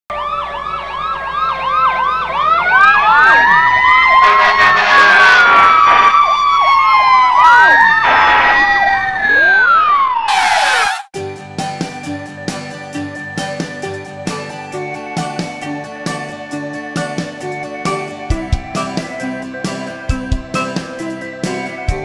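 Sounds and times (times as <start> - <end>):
siren wail: 0.1 - 11.1
siren yelp: 0.1 - 11.1.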